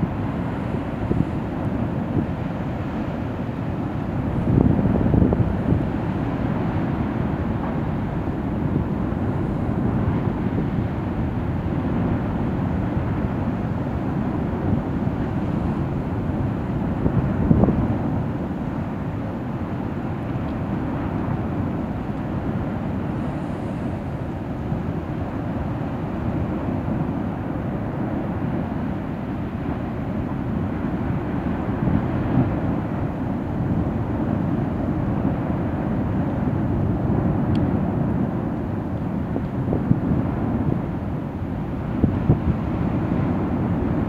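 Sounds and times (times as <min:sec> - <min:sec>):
lava lake low rumble: 0:00.0 - 0:44.0.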